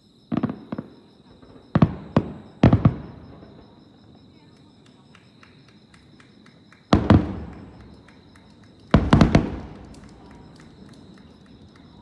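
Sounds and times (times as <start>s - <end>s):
firework shells booming: 0.3s - 12.0s.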